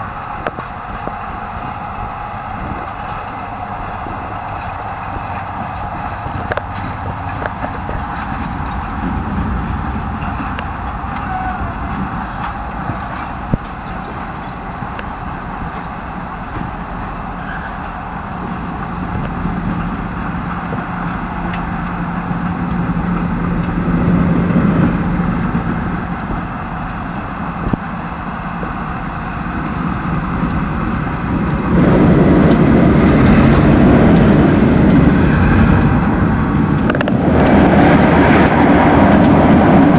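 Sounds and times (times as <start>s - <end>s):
diesel locomotive: 0.0s - 39.9s
train coaches rumbling on rails: 0.0s - 39.9s.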